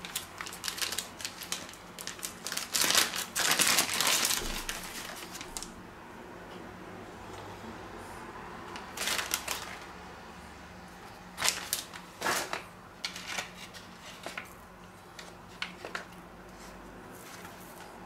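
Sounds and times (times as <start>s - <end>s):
plastic bag crinkling: 0.0s - 5.8s, 8.8s - 9.9s, 11.4s - 14.6s.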